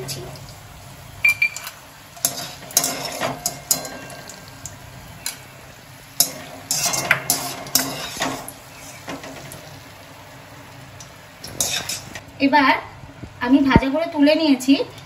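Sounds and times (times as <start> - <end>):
strainer scraping metal pan: 2.2 - 4.4, 6.2 - 9.5, 11.4 - 12.2.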